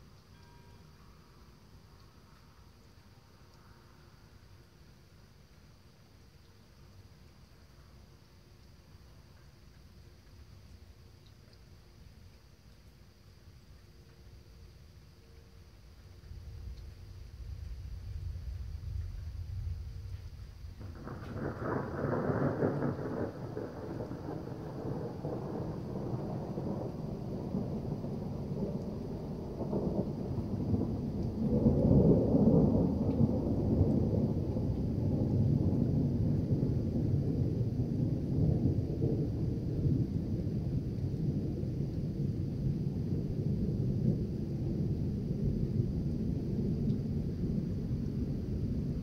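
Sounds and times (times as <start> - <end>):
thunder rumbling: 16.3 - 49.0.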